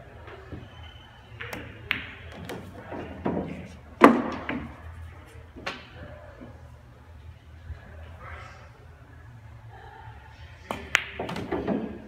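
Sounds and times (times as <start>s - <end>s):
billiard balls clicking: 1.4s - 4.8s.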